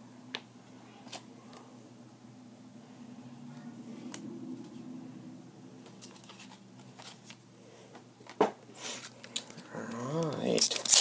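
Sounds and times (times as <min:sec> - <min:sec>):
cards tapping and sliding: 0:05.8 - 0:11.0.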